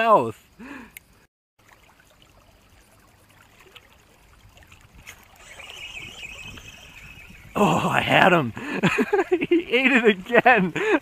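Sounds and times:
flowing river water: 0:01.6 - 0:11.0
faint steady high tone: 0:05.4 - 0:08.4.

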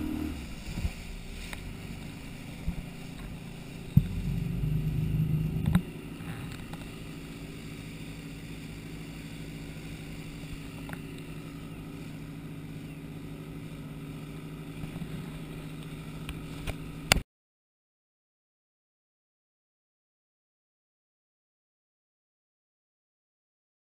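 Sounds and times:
motorboat engine running: 0:00.0 - 0:17.2
water and wind hiss on hull: 0:00.0 - 0:17.2.

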